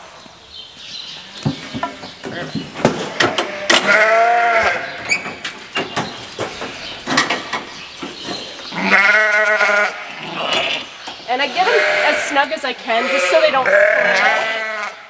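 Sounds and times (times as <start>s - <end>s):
sheep bleating: 3.0s - 5.0s, 8.7s - 15.0s
metallic knocks and rattles: 5.0s - 8.4s.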